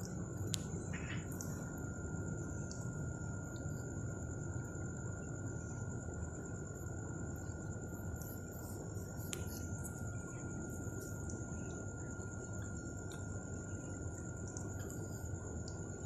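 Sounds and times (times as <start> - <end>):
faint clicks: 0.0 - 1.8, 9.2 - 16.0
low background rumble: 0.0 - 16.0
night insects droning: 0.0 - 16.0.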